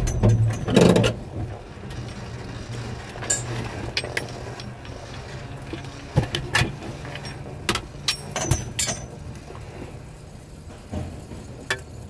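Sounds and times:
steady low hum: 0.0 - 11.6.

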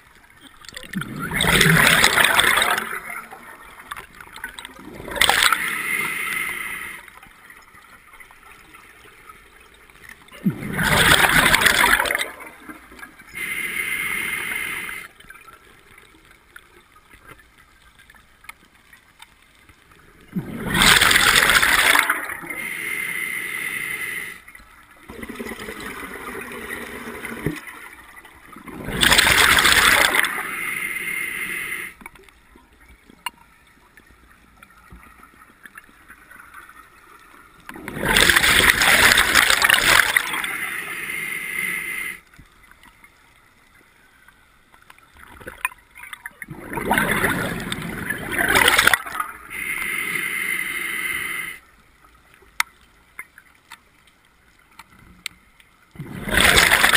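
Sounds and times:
exhaled bubbles rushing: 0.8 - 3.9, 4.8 - 5.7, 10.3 - 12.7, 20.3 - 22.5, 25.1 - 27.4, 28.5 - 30.5, 37.7 - 40.7, 46.5 - 49.6, 56.0 - 56.9
regulator breathing: 13.4 - 15.1, 49.5 - 51.6.

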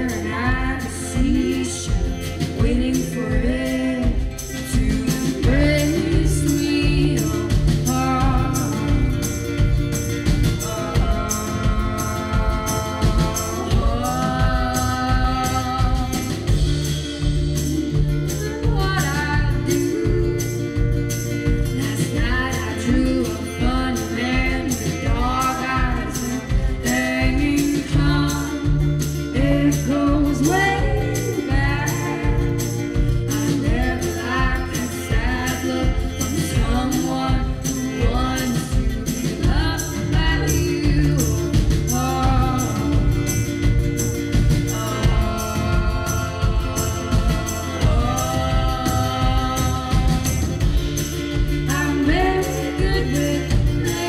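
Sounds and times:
acoustic guitar: 0.0 - 54.0
drums with steady beat: 0.0 - 54.0
keyboard: 0.0 - 54.0
person singing: 0.0 - 54.0.

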